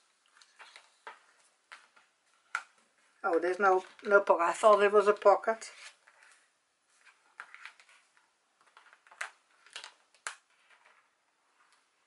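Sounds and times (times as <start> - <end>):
paper pages rustling: 0.3 - 12.0.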